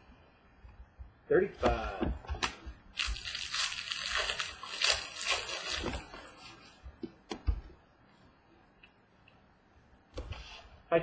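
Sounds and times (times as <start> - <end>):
foil wrapper crinkling: 2.9 - 6.6.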